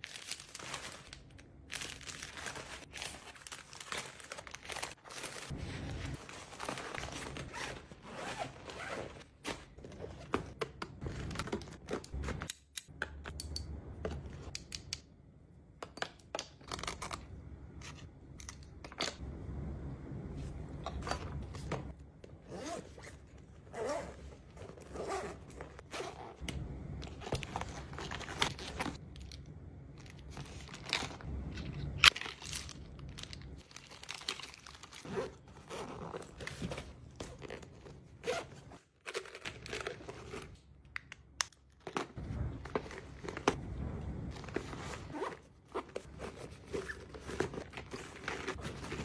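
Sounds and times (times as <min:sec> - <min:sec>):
rustling of pouches: 0:00.0 - 0:12.4, 0:30.0 - 0:40.6, 0:44.3 - 0:49.0.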